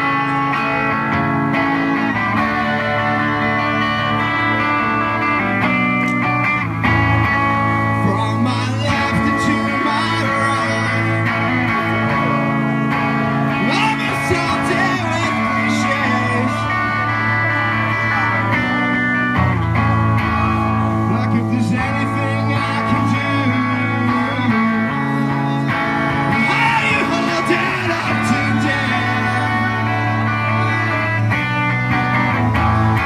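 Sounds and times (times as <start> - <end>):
electric guitar: 0.0 - 33.0
man singing: 7.8 - 19.0, 21.0 - 31.6.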